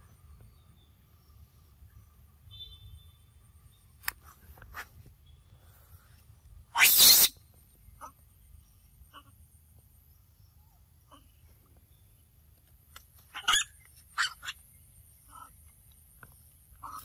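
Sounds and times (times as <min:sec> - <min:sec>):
macaque squealing cries: 0:06.7 - 0:07.4, 0:13.3 - 0:14.6.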